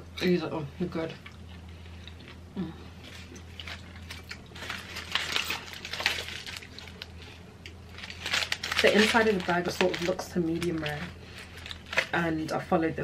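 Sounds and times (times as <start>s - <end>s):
aluminium foil crinkling: 3.0s - 12.8s.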